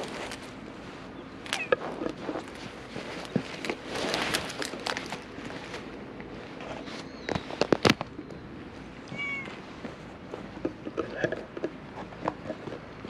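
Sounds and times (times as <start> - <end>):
jacket rustling on microphone: 0.0 - 7.9.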